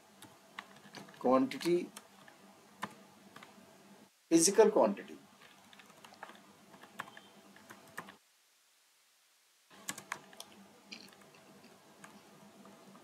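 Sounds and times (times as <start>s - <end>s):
keyboard typing: 0.2s - 3.5s, 5.4s - 8.2s, 9.8s - 13.0s.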